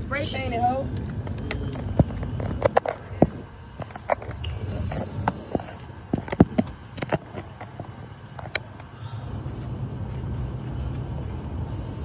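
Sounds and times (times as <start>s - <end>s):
low outdoor rumble: 0.0s - 12.0s
sharp clicks and knocks: 0.9s - 8.9s.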